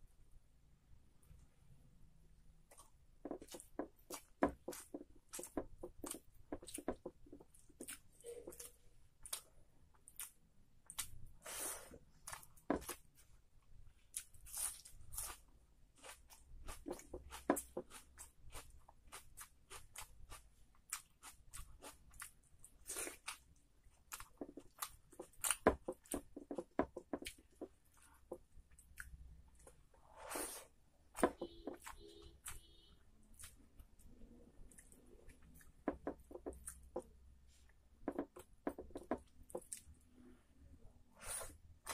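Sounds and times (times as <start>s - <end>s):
crunchy chewing: 14.0s - 29.9s, 33.3s - 37.1s.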